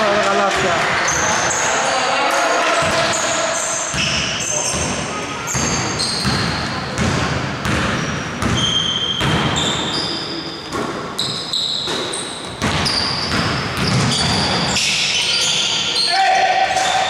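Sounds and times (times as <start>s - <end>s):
sneakers squeaking on floor: 0.6s - 2.0s, 2.8s - 17.0s
basketball bouncing on hardwood: 5.5s - 9.6s, 11.9s - 14.6s.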